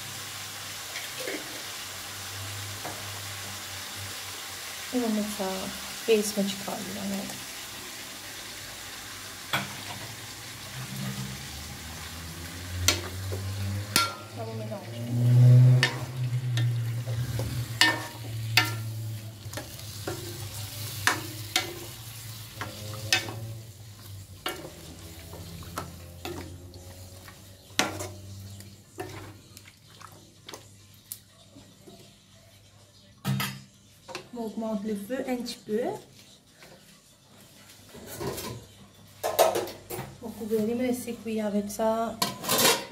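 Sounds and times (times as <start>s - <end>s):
frying sizzle: 0.0s - 32.5s
spatula knocking and scraping wok: 10.8s - 29.4s.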